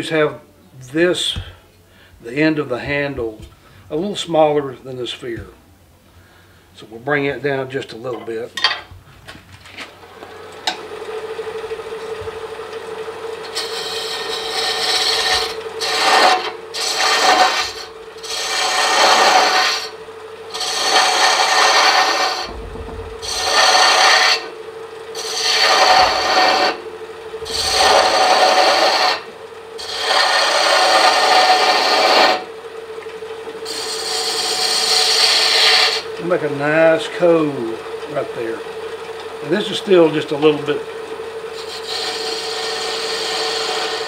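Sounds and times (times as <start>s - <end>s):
wood lathe humming: 9.9s - 44.0s
turning tool cutting wood: 10.1s - 44.0s.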